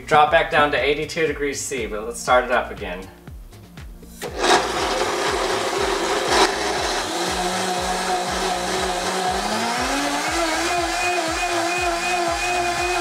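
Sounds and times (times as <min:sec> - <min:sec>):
blender running: 0:04.2 - 0:13.0.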